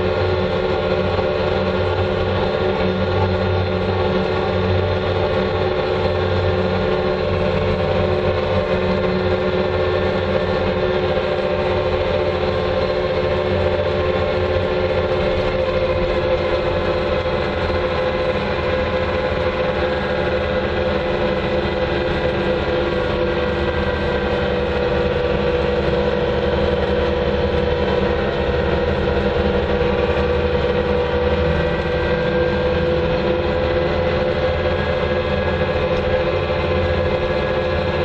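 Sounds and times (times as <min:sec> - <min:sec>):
loader engine droning: 0:00.0 - 0:38.0.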